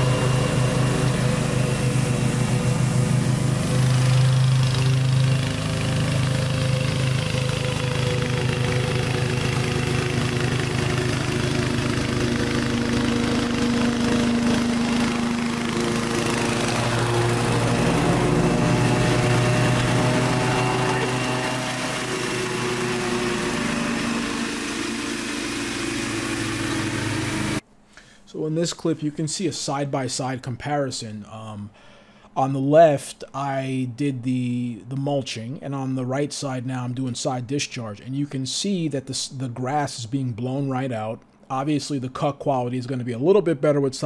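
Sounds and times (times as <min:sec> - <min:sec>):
lawn mower engine running: 0:00.0 - 0:27.6.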